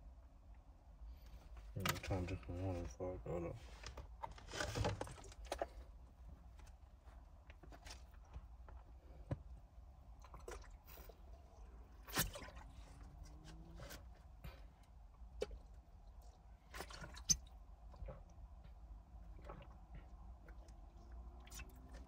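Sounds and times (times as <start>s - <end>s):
person swallowing water: 10.2s - 11.1s, 19.3s - 22.0s.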